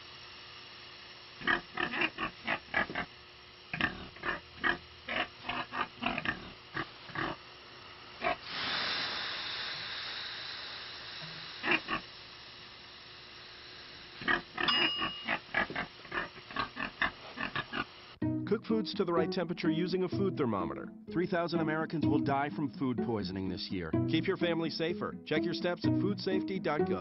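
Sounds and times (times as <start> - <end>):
steam hissing from sauna stones: 0.0 - 18.2
pig grunting: 1.4 - 3.1, 3.7 - 7.4, 8.2 - 8.4, 11.6 - 12.0, 14.2 - 17.9.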